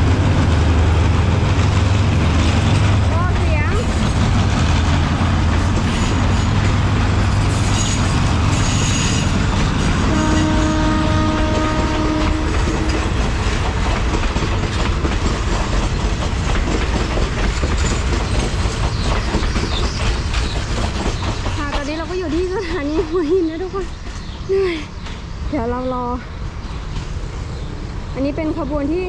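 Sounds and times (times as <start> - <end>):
train wheels clicking on rails: 0.0 - 29.0
locomotive horn: 10.0 - 13.2.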